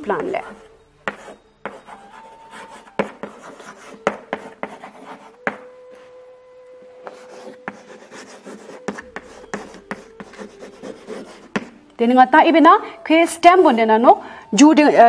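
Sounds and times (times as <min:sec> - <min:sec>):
chalk tapping on board: 0:01.0 - 0:05.7, 0:07.0 - 0:11.8
chalk scratching on blackboard: 0:01.1 - 0:05.6, 0:07.0 - 0:11.8.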